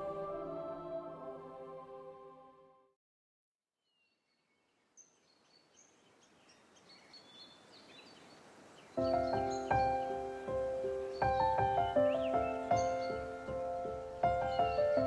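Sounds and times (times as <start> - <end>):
music with sustained notes: 0.0 - 2.8, 9.0 - 15.0
songbirds chirping and whistling: 3.9 - 15.0
faint hiss: 4.5 - 15.0.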